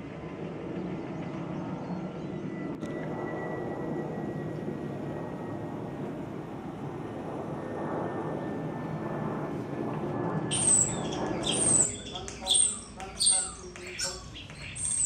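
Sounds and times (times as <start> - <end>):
starling squawking and whistling: 10.5 - 15.0.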